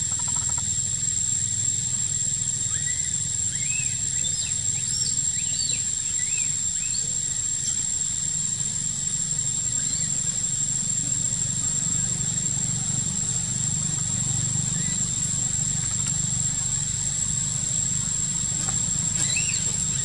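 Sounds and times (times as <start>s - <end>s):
high-pitched insect drone: 0.0s - 20.0s
small birds chirping: 2.6s - 8.3s, 9.5s - 10.4s, 13.0s - 15.8s, 18.4s - 20.0s
low steady rumble: 8.1s - 20.0s.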